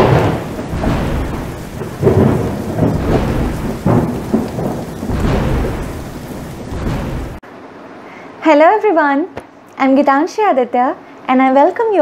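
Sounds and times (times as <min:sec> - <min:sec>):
heavy rain: 0:00.0 - 0:07.4
thunder rumbling: 0:00.0 - 0:07.4.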